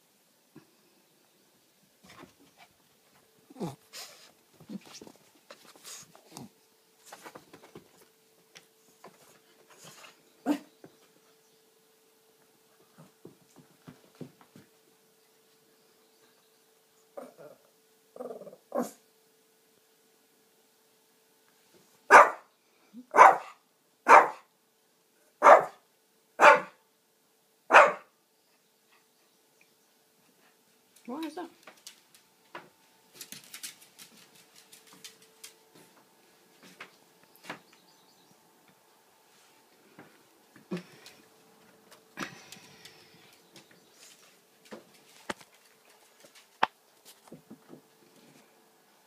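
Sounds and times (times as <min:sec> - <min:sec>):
dog barking: 0:22.1 - 0:22.5, 0:23.1 - 0:24.5, 0:25.4 - 0:25.8, 0:26.4 - 0:26.8, 0:27.7 - 0:28.1.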